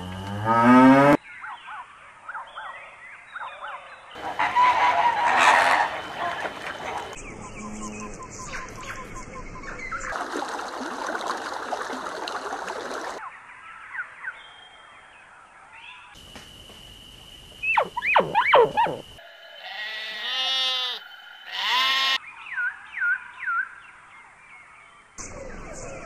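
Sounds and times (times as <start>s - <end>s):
quick sweeping calls: 17.6s - 22.2s
sheep bleating: 19.6s - 22.2s.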